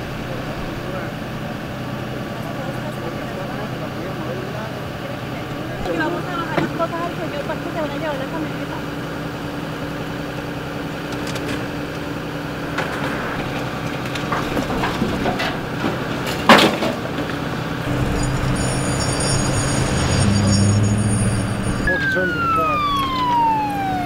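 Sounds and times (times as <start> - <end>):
vehicle engine idling: 0.0 - 24.0
louder engine with high whine: 7.3 - 15.2, 17.8 - 24.0
sharp metallic clank: 17.9 - 22.2.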